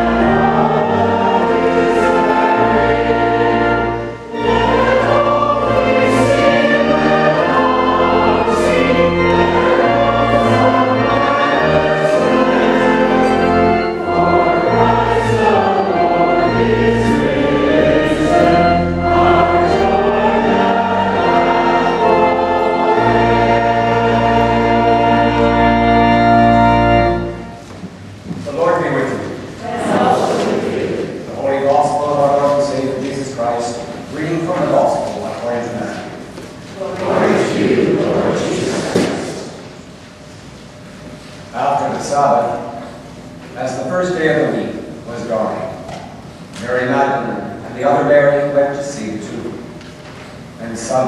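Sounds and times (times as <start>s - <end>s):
choir and congregation singing hymn: 0.0s - 27.7s, 28.4s - 40.1s
low held notes: 0.0s - 36.2s.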